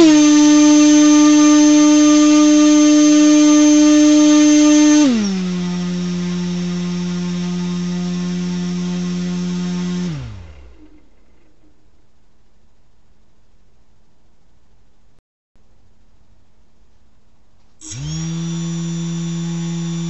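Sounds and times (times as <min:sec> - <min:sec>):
motor spinning propeller whine: 0:00.0 - 0:11.8, 0:17.8 - 0:20.0.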